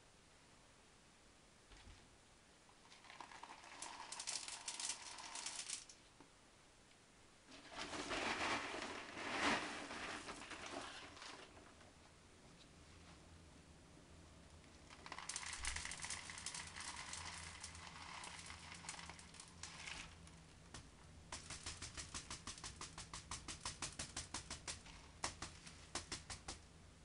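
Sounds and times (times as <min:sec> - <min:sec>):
sharp clicks of settling pebbles: 0:02.7 - 0:06.3, 0:07.5 - 0:11.9, 0:14.5 - 0:26.8
clay pebbles rattling into pot: 0:02.8 - 0:06.0, 0:07.5 - 0:11.9, 0:14.5 - 0:26.7.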